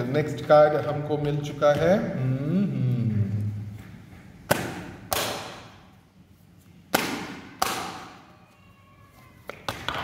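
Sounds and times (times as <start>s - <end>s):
card slaps with echo: 4.5s - 5.7s, 6.9s - 8.2s.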